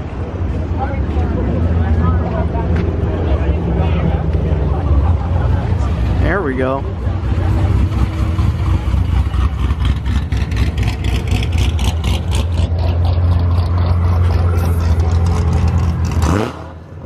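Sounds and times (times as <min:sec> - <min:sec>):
car engine idling: 0:00.0 - 0:16.2.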